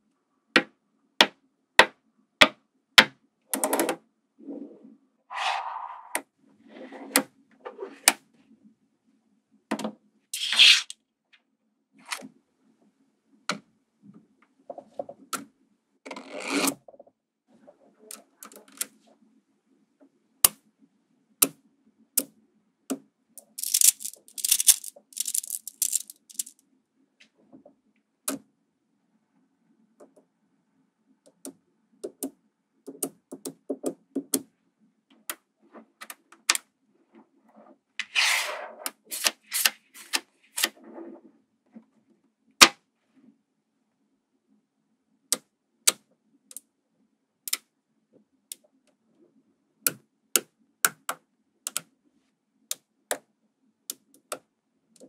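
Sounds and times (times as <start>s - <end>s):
magnetic balls clicking together: 23.4s - 26.6s
rapid clattering of balls: 23.4s - 26.6s.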